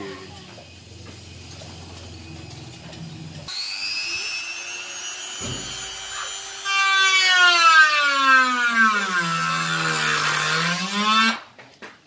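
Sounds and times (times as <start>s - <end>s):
rotary tool whining cutting wood: 2.0s - 11.4s.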